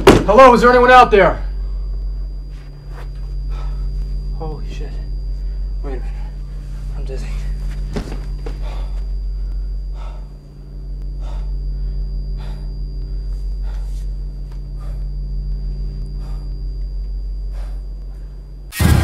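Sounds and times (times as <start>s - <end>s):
low electrical hum: 0.0s - 19.0s
man breathing heavily: 3.0s - 4.3s, 5.0s - 18.7s.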